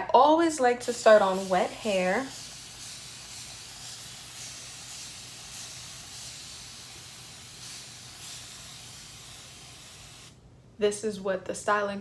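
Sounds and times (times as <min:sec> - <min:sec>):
spray bottle misting hiss: 0:00.8 - 0:10.4.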